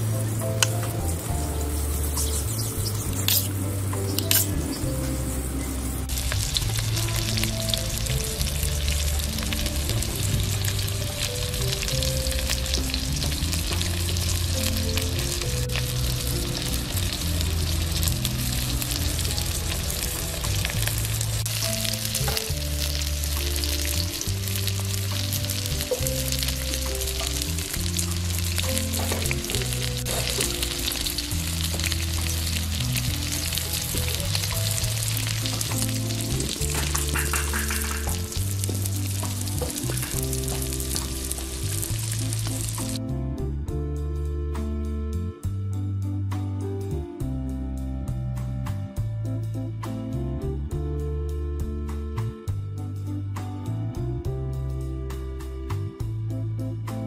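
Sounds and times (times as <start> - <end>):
oil sizzling: 0.0 - 43.0
background music with bass: 0.0 - 57.0.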